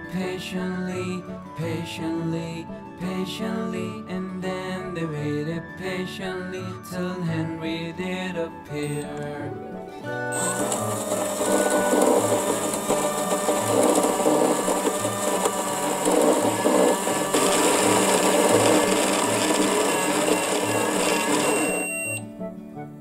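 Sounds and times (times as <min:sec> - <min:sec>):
toy microwave whirring: 0:10.3 - 0:22.2.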